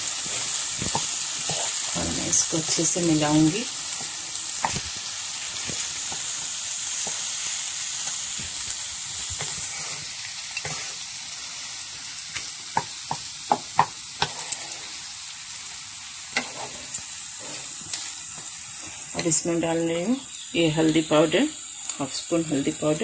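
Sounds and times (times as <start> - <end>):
food sizzling in oil: 0.0 - 23.0
wooden spatula scraping a pan: 9.4 - 11.0, 14.2 - 15.1, 16.3 - 19.0
spatula tapping a pan: 12.4 - 14.4.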